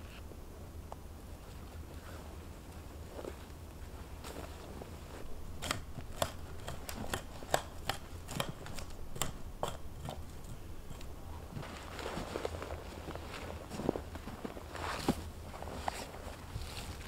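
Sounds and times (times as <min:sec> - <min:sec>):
small branches snapping: 0:05.5 - 0:11.1.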